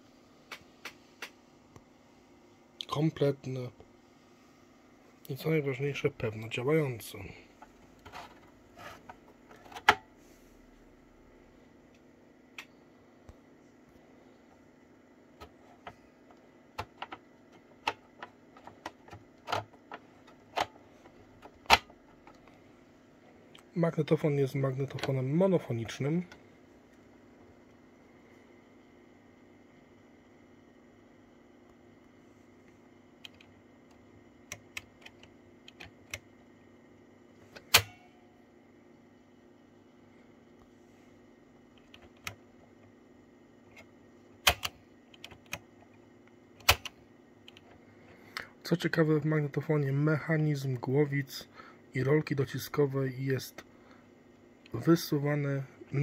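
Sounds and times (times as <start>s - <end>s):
clicks and knocks handling cassette recorder: 7.6s - 10.1s, 15.4s - 22.6s, 37.5s - 38.0s, 41.7s - 43.0s, 43.7s - 46.0s, 46.6s - 47.8s.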